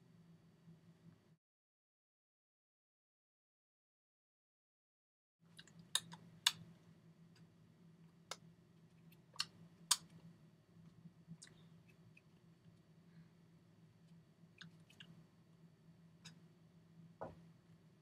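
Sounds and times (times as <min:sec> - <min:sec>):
faint low hum: 0:00.0 - 0:01.4, 0:05.4 - 0:18.0.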